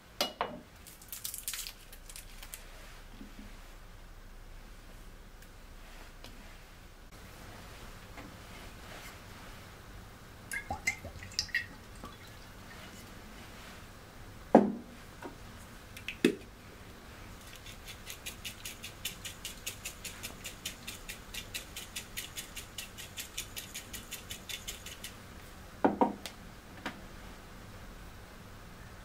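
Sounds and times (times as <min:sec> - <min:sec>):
object knocking on counter: 0:14.6 - 0:14.8
hand grater scraping: 0:17.5 - 0:25.2.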